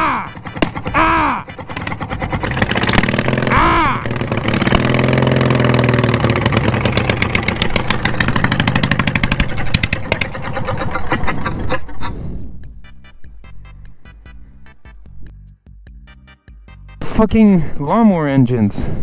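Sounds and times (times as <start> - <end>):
mower engine running roughly: 0.0 - 12.0
engine backfiring pops: 0.3 - 10.6.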